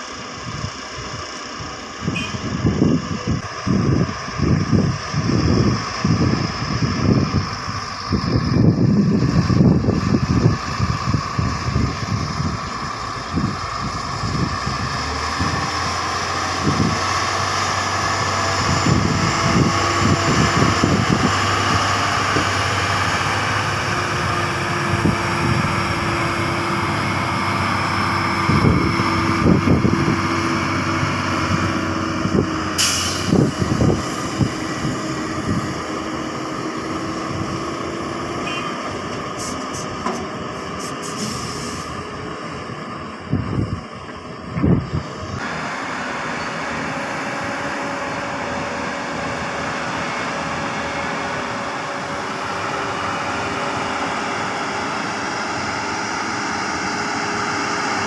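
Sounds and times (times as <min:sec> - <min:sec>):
diesel engines running: 0:00.0 - 0:58.0
short hiss: 0:32.8 - 0:33.4, 0:40.8 - 0:41.9.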